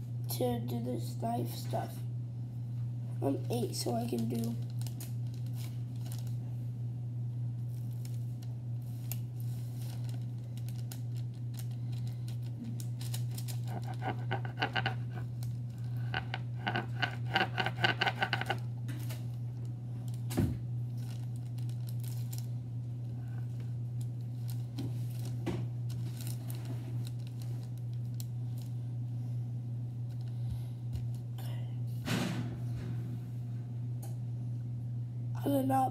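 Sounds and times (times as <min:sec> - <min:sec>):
steady low hum: 0:00.0 - 0:35.9
knife scraping dough on paper: 0:13.6 - 0:18.6.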